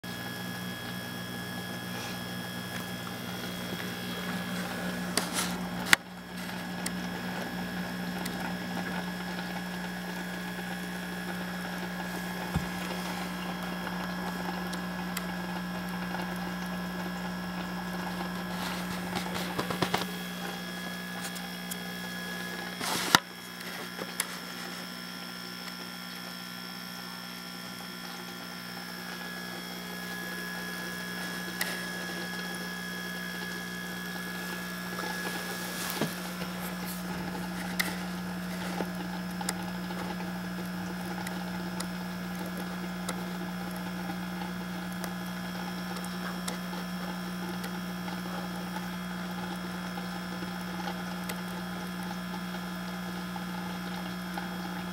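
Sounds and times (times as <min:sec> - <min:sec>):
low electrical hum: 0:00.1 - 0:54.9.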